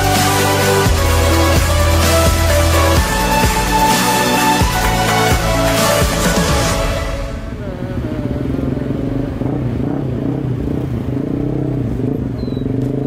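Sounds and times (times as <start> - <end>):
electronic dance music: 0.0 - 7.6
motorcycle engine running: 7.4 - 13.0.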